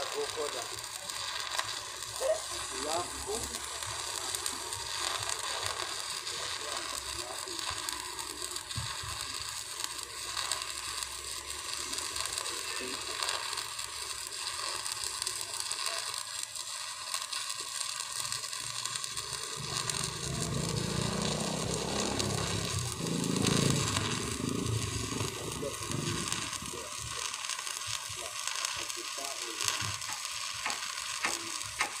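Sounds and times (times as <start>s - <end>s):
welding arc crackling: 0.0s - 32.0s
low hum: 19.3s - 26.7s.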